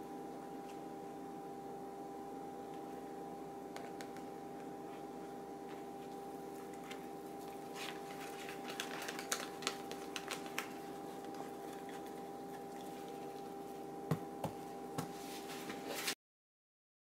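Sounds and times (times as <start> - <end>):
steady electrical hum: 0.0 - 16.2
paper towel crinkling: 5.6 - 13.9.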